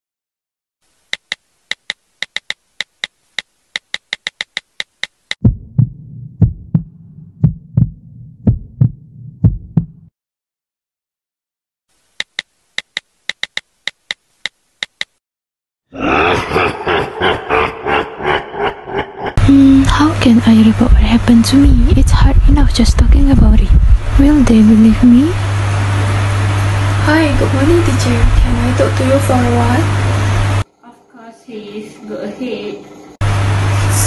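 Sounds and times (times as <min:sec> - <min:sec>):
phone keyboard tap clicks: 0:01.1 - 0:03.1, 0:03.8 - 0:05.4, 0:12.2 - 0:15.2
heartbeat double thumps: 0:05.4 - 0:10.1, 0:20.8 - 0:24.8.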